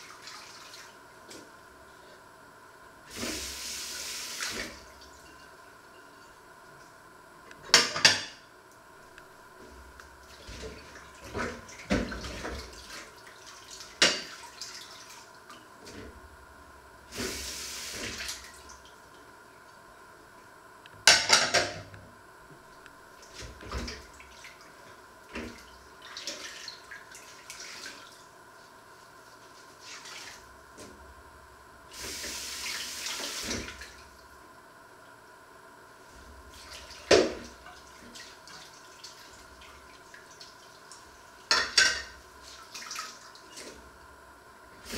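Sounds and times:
dishes clattering: 7.7s - 8.4s, 41.5s - 42.1s
dishes clinking in a metal sink: 7.7s - 8.4s, 14.0s - 14.4s, 21.0s - 21.9s, 41.5s - 42.2s.

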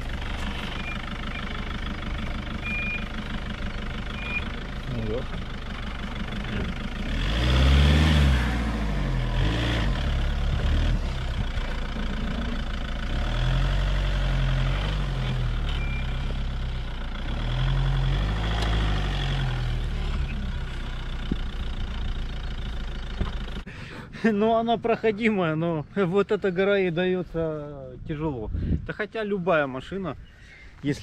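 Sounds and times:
car engine revving: 0.0s - 23.6s.

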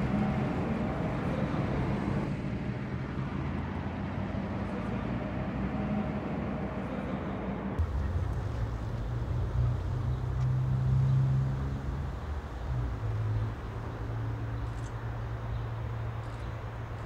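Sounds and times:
steady low rumble: 7.8s - 13.7s.

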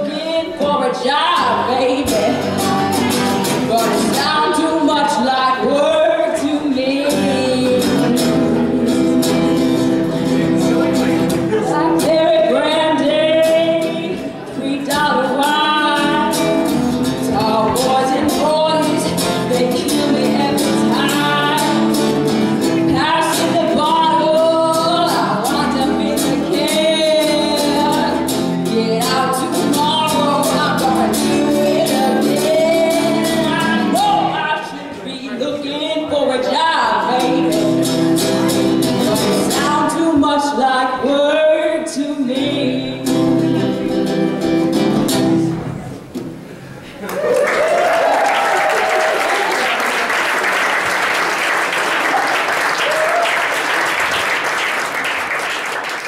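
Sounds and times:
woman singing into a microphone: 0.0s - 10.0s, 11.6s - 44.2s
live band playing: 2.0s - 4.5s, 7.1s - 34.4s, 37.2s - 39.6s, 43.0s - 46.8s.

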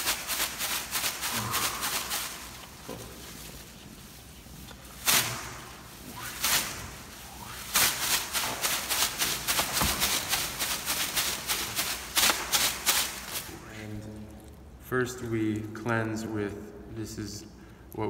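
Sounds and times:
leaf bundle swishing and slapping: 0.0s - 13.7s.

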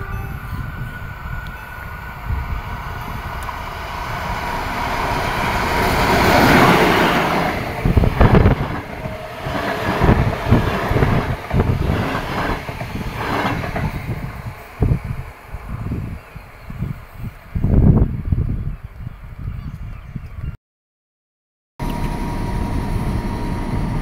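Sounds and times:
diesel locomotive engine: 0.0s - 18.4s, 21.8s - 24.0s
train wheels knocking over rail joints: 5.7s - 14.5s.

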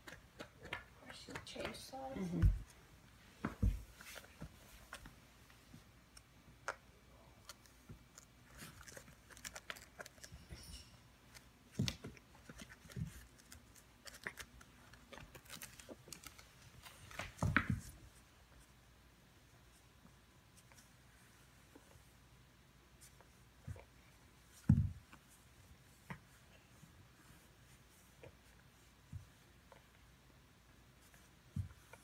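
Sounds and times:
claws scratching and clicking: 7.4s - 11.5s, 12.3s - 17.2s.

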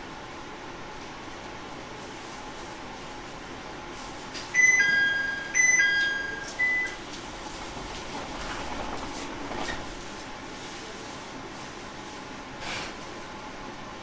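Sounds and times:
two-note electronic chime: 4.6s - 6.9s.

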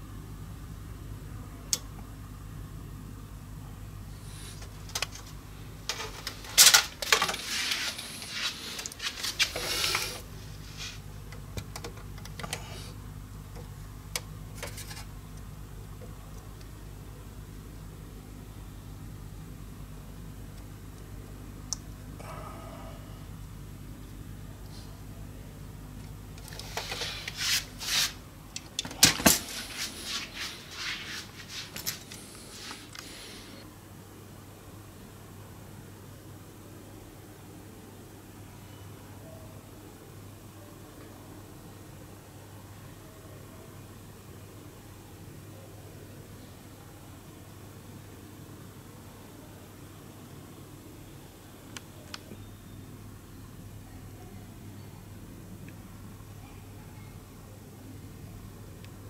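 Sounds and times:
low steady hum: 0.0s - 59.0s
tape measure rustling and scraping: 5.9s - 11.0s, 26.4s - 28.2s, 29.0s - 33.5s.

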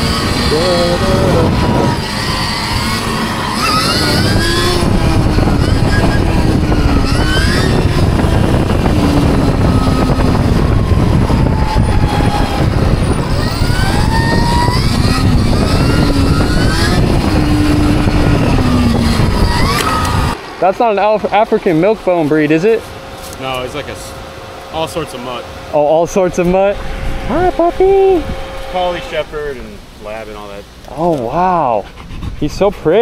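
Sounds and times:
electric dirt bike motor whining: 0.0s - 20.4s, 22.9s - 29.7s
wind rumble on microphone: 0.0s - 20.4s, 26.0s - 30.7s, 31.3s - 33.0s.

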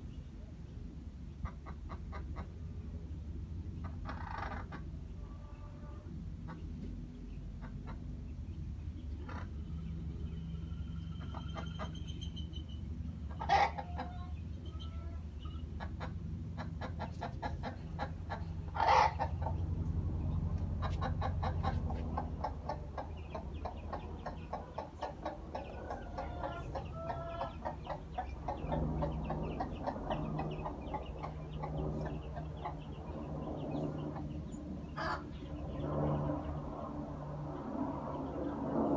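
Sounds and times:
low steady hum: 0.0s - 38.9s
hen clucking: 1.4s - 2.6s, 3.8s - 6.9s, 7.5s - 8.2s, 9.1s - 9.7s, 13.3s - 19.7s, 20.6s - 33.0s, 33.7s - 35.2s.

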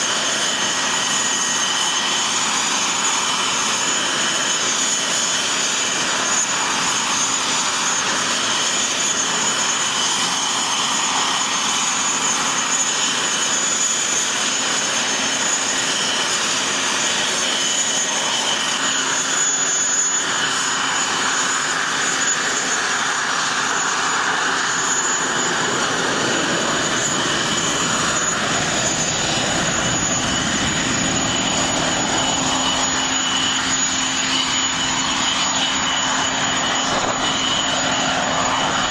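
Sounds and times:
jet engines whining and roaring: 0.0s - 38.9s
deep jet rumble: 24.2s - 38.9s.

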